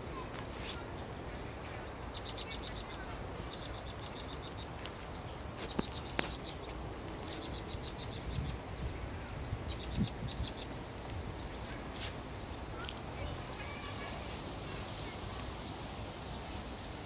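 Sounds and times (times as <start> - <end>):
birds chattering alarm calls: 1.8 - 10.9.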